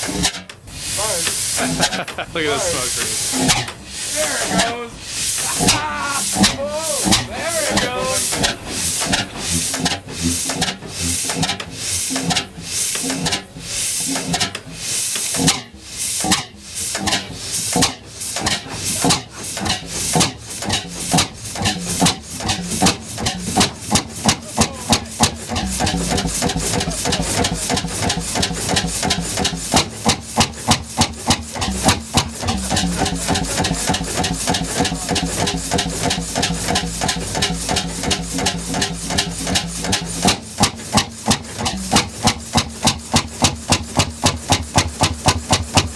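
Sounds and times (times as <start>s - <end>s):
single-cylinder engine firing: 0.0s - 45.9s
steady low hum: 15.7s - 29.7s, 31.5s - 40.6s.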